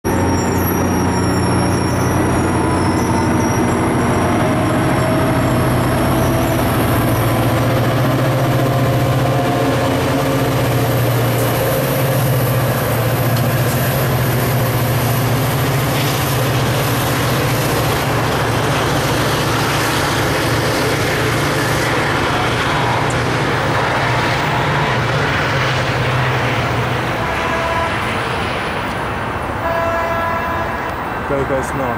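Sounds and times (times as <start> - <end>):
high wheel squeal: 0.0 - 20.6
diesel locomotive engine drone: 0.0 - 31.9
train cars rumbling: 0.0 - 31.9.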